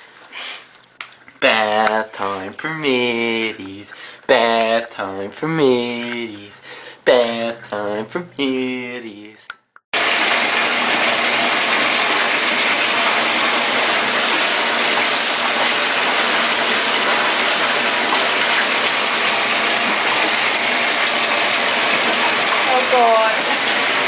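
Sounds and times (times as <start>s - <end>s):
churning bathtub jets: 1.1s - 8.5s, 10.0s - 24.0s
pump motor: 10.0s - 24.0s.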